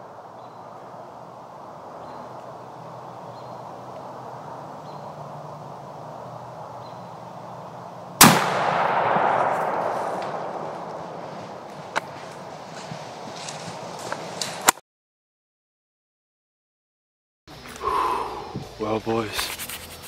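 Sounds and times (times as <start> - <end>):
rifle shot echoing: 8.2 - 12.0.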